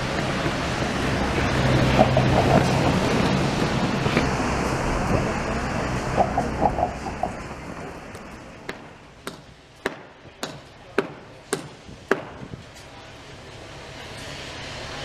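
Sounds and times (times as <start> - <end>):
hammer strikes: 8.7 - 12.5.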